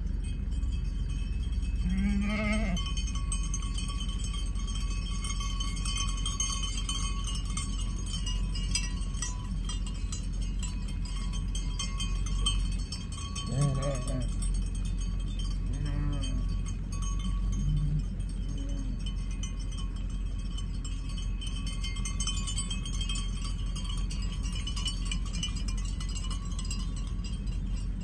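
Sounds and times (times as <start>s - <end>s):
sheep bells clinking: 0.0s - 28.0s
steady low rumble: 0.0s - 28.0s
sheep bleating: 1.8s - 2.9s, 13.5s - 14.3s, 15.7s - 16.5s.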